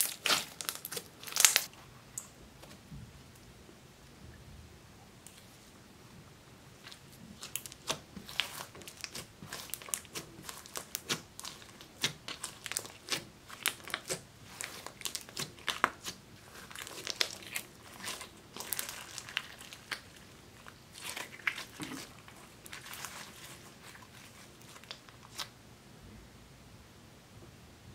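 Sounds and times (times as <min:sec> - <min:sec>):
sticky slime crackling and popping: 0:00.0 - 0:01.7, 0:06.8 - 0:25.5.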